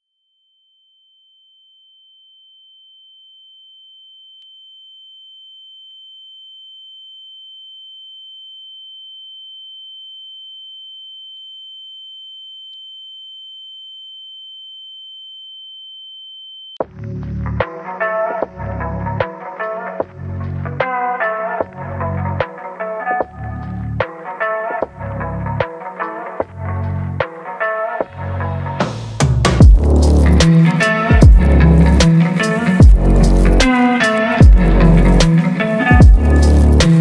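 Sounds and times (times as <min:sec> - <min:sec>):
loud music with guitar: 0:17.0 - 0:37.0.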